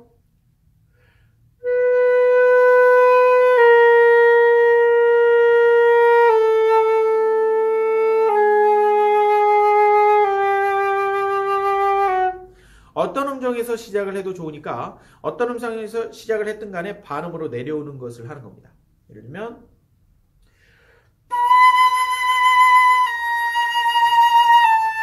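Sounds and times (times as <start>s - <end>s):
flute playing slow held notes: 1.6s - 12.5s, 21.3s - 25.0s.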